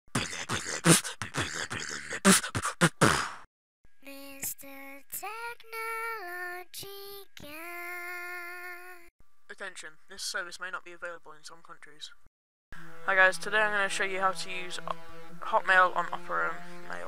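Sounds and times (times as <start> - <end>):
beatbox-like percussive hits: 0.1 - 3.5.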